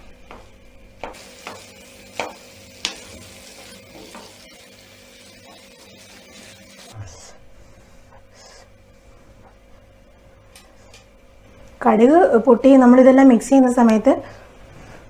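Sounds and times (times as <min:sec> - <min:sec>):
faint sizzle: 0:01.1 - 0:07.4.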